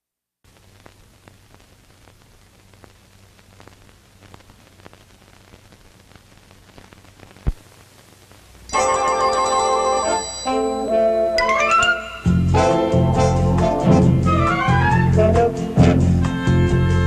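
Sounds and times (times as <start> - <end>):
faint crackles: 0.4 - 8.8
steady hiss: 0.4 - 11.4, 12.1 - 17.0.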